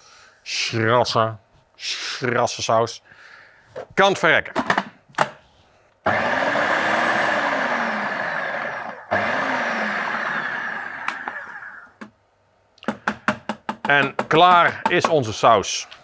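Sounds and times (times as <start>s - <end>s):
electric blender running: 6.1s - 12.0s.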